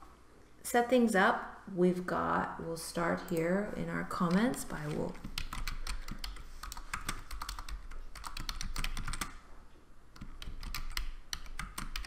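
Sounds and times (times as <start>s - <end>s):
computer keyboard typing: 4.2s - 9.4s, 10.2s - 12.0s.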